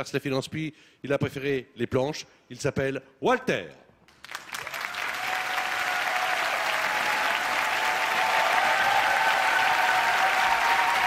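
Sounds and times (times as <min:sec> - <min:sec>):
studio audience applauding: 0:04.1 - 0:11.0.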